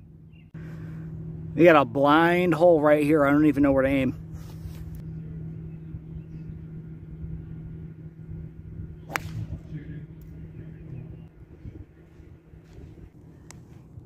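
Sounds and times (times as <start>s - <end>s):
golf club striking ball: 9.0s - 10.3s.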